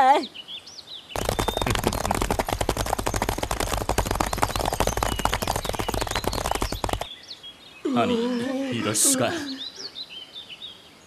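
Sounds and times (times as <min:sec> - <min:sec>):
faint birdsong: 0:00.0 - 0:02.5, 0:04.2 - 0:11.0
cartoon galloping hoofbeats: 0:01.2 - 0:07.1.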